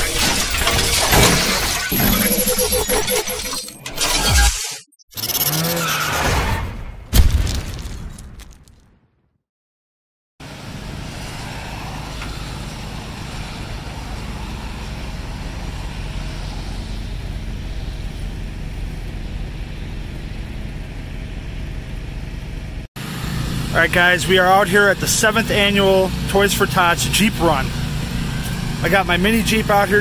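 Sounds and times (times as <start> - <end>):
low engine hum: 10.4 - 30.0
road traffic noise: 10.4 - 30.0.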